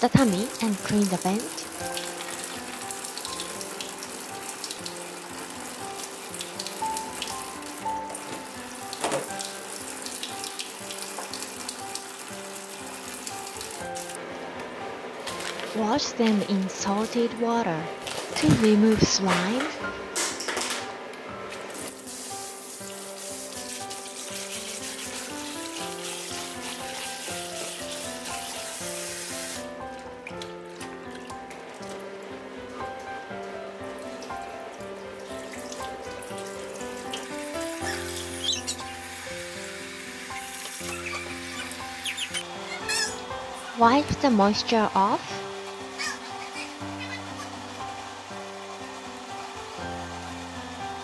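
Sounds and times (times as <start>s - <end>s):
soft background music: 0.0s - 51.0s
water trickling in a sink: 0.2s - 14.2s, 22.2s - 43.1s
tap running into steel bowl: 8.2s - 9.5s.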